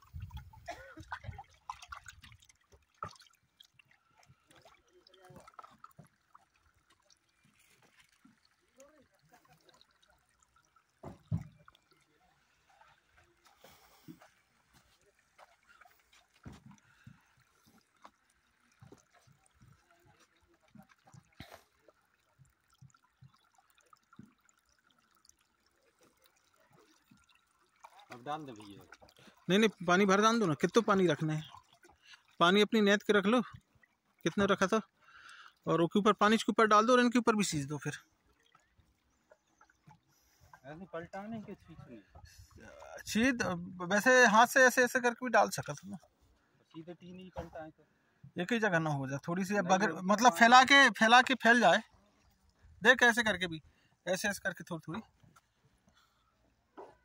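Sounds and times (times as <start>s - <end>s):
water trickling from a hose: 0.0s - 57.0s.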